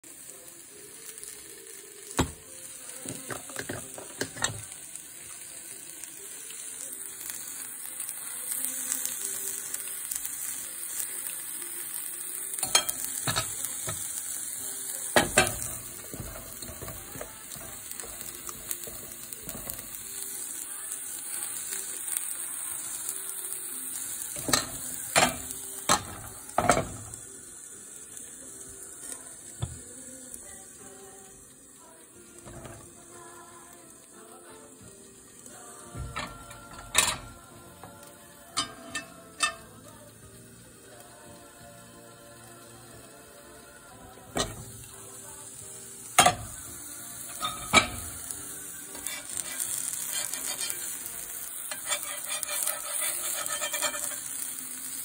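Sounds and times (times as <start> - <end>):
batter sizzling in a frying pan: 0.0 - 55.0
metal spatula scraping a pan: 15.2 - 20.0, 36.0 - 37.4, 47.3 - 48.3, 48.9 - 54.4.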